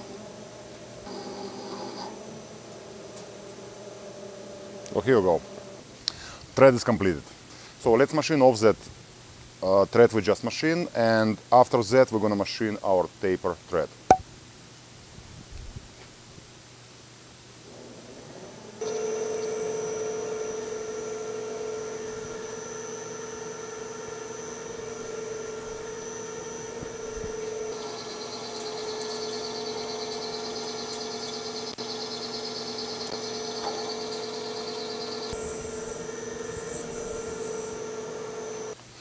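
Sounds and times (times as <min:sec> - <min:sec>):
lathe spindle whine: 0:00.0 - 0:05.8, 0:18.8 - 0:38.8.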